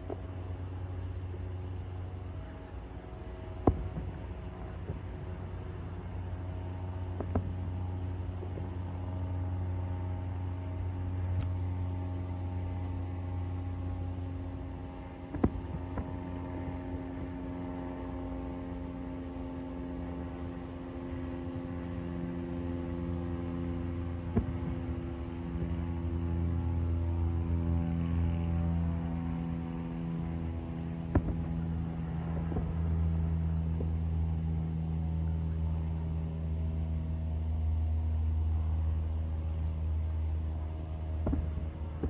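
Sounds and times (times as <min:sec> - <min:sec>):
machinery humming: 0:00.0 - 0:42.0
firework bangs: 0:02.4 - 0:10.0, 0:14.8 - 0:17.3, 0:23.6 - 0:26.8, 0:31.1 - 0:34.1, 0:41.0 - 0:42.0.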